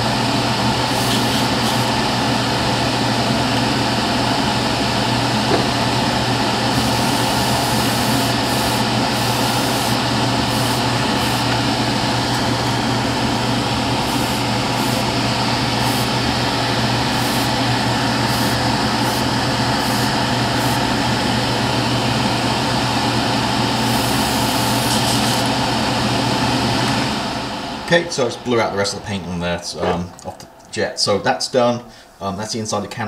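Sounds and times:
extractor fan humming: 0.0 - 32.9
airbrush air hisses: 0.8 - 2.0, 6.6 - 11.6, 13.9 - 21.0, 23.7 - 25.5.

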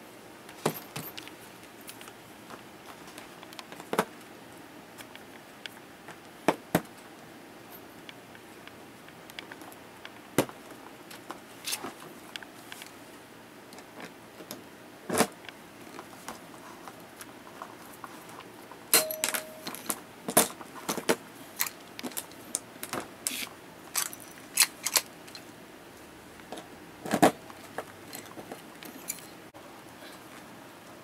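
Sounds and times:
rivets clinking: 19.0 - 20.0.

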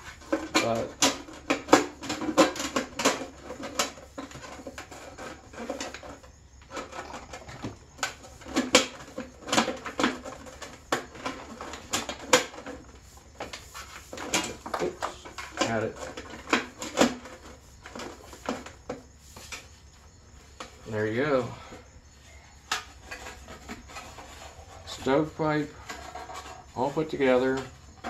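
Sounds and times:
thin sheet metal clicking and rattling: 0.0 - 18.7.

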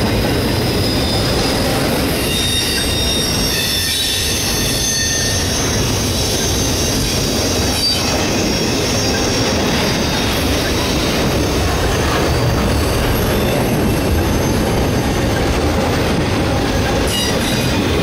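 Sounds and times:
train wheels rumbling on rail: 0.0 - 18.0
high-pitched wheel squeal: 0.7 - 11.0, 16.9 - 18.0.

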